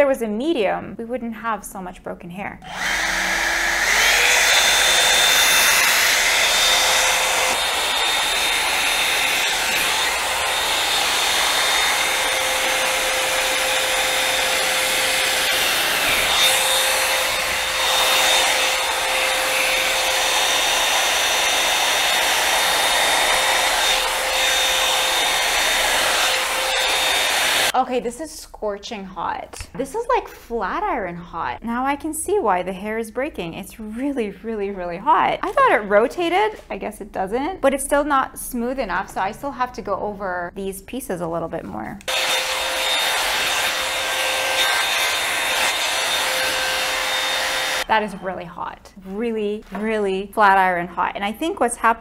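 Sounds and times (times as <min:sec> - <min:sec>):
hair dryer brush blowing air: 0:02.6 - 0:27.8, 0:42.0 - 0:48.7.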